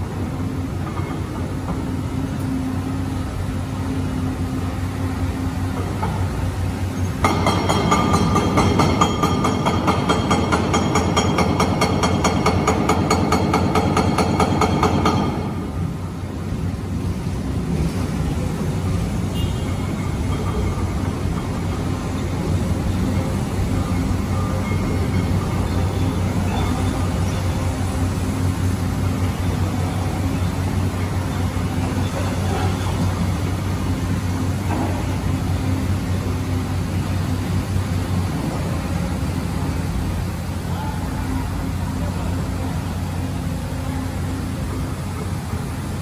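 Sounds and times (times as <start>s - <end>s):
excavator diesel engines humming: 0.0s - 46.0s.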